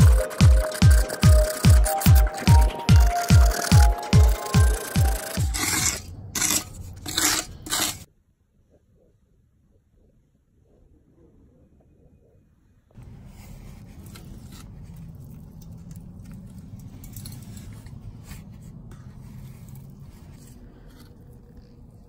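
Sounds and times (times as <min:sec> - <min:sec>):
trowel scraping mortar: 0:00.0 - 0:08.1.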